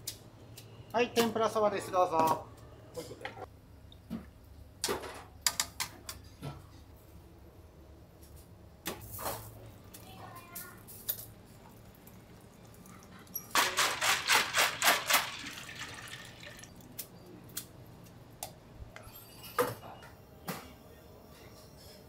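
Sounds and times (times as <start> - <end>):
strainer shaking with splashes: 13.5 - 16.7.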